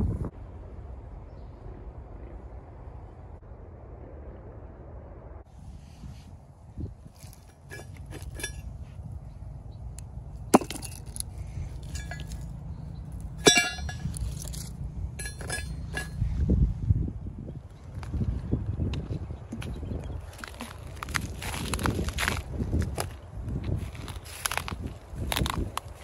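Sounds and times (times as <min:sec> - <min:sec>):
stones clicking and scraping: 0:07.2 - 0:08.6, 0:10.5 - 0:12.5
metal plate clinking: 0:07.5 - 0:08.6, 0:10.6 - 0:11.2, 0:11.8 - 0:12.4, 0:13.4 - 0:16.2.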